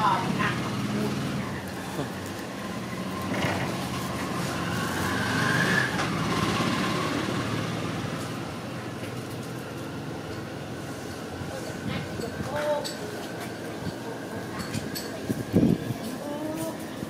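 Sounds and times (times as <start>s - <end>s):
vehicle engine running: 0.0s - 12.2s
engine whine: 0.0s - 17.0s.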